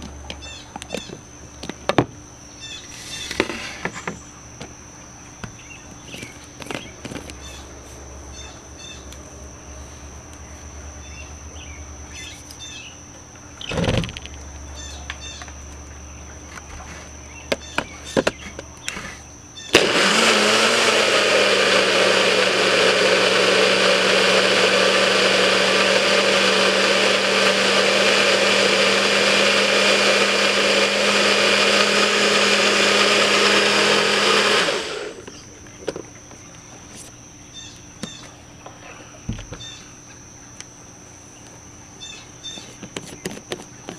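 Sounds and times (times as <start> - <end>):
blender motor running: 19.7 - 35.3.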